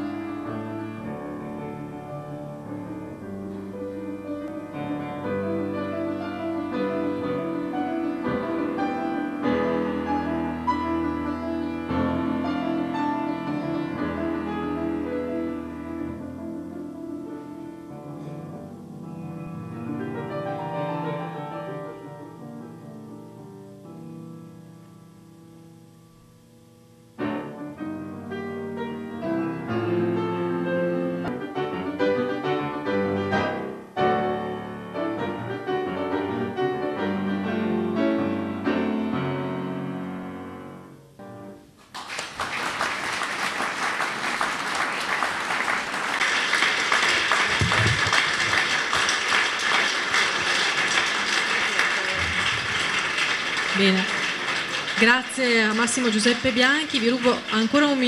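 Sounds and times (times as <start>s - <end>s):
grand piano solo: 0.0s - 41.8s
audience applause: 41.8s - 58.0s.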